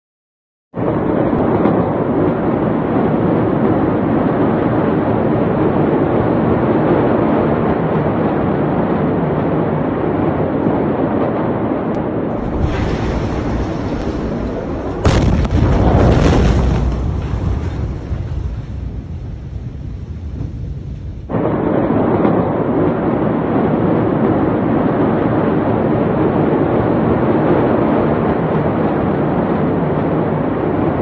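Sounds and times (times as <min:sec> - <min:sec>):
deep rumble: 0:00.8 - 0:31.0
steady rushing noise: 0:00.8 - 0:31.0
massive explosion bang: 0:12.2 - 0:22.2.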